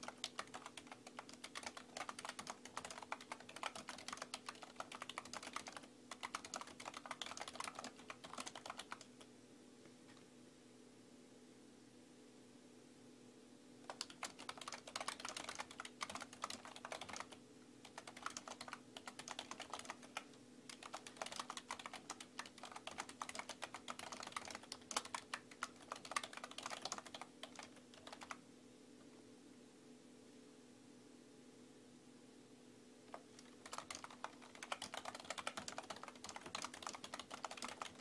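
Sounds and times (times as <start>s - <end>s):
keyboard typing: 0.0s - 9.3s, 13.8s - 28.4s, 33.1s - 38.0s
faint steady hum: 0.0s - 38.0s.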